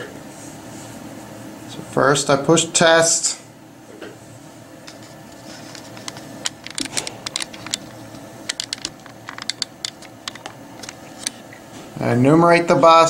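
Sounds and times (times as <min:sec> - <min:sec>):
keyboard and mouse clicking: 0:08.5 - 0:11.0.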